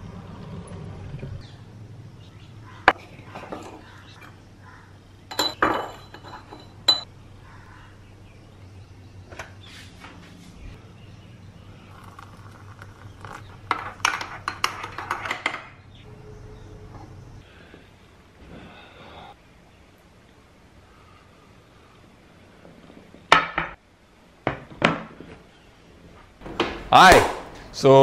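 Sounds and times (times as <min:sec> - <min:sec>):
metal spoon clinking on glass: 0:05.3 - 0:07.1.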